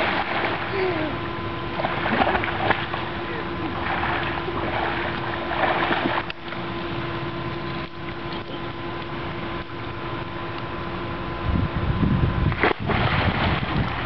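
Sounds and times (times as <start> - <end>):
water splash: 0.0 - 0.7, 1.8 - 6.6, 12.5 - 14.0
pool water noise: 0.0 - 10.7, 12.5 - 14.0
faint steady hum: 0.0 - 14.0
wind buffeting microphone: 11.3 - 14.0.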